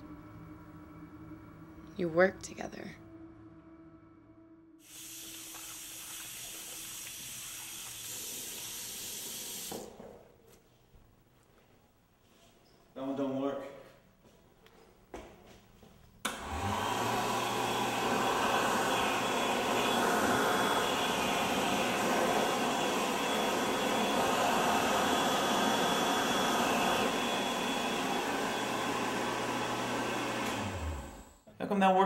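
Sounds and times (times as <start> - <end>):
hand dryer blowing air: 4.8 - 10.0, 16.3 - 31.4.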